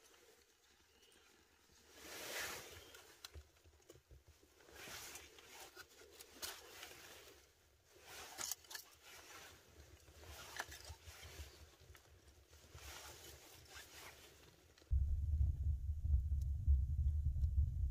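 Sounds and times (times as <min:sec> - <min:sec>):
dry sticks rustling: 0:00.0 - 0:14.9.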